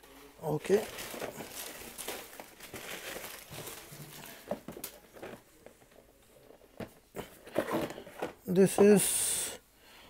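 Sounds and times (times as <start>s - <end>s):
plastic packaging crinkling: 0.5s - 5.7s.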